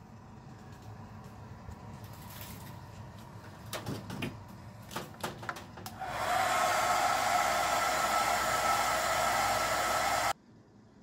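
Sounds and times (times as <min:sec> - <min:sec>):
hair dryer blowing: 0:05.9 - 0:10.4.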